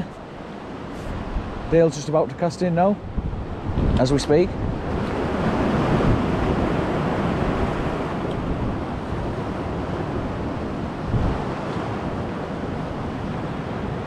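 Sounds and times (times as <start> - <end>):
wind on microphone: 0.0 - 2.0, 2.8 - 14.0
sea waves washing in: 0.0 - 14.0.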